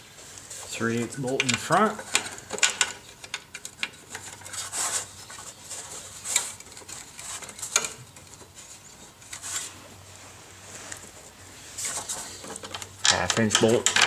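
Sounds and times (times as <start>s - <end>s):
metal and plastic parts clicking: 1.4s - 4.6s.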